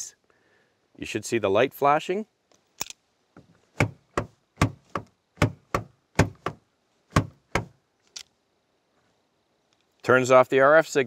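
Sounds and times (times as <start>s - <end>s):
car door handle clacking: 3.8s - 7.7s.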